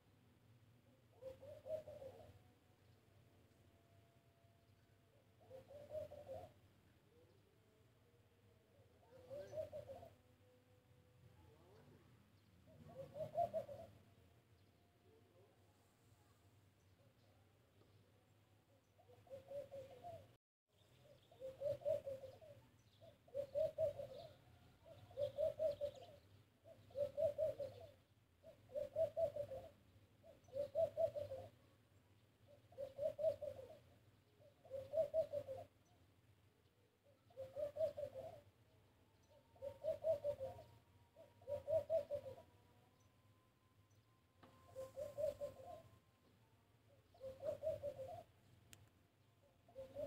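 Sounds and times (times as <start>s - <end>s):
dove cooing: 0.9s - 2.9s, 5.1s - 10.8s, 11.4s - 14.2s, 18.9s - 20.4s, 21.1s - 31.8s, 32.4s - 35.9s, 36.8s - 43.1s, 43.9s - 48.4s, 49.4s - 50.0s.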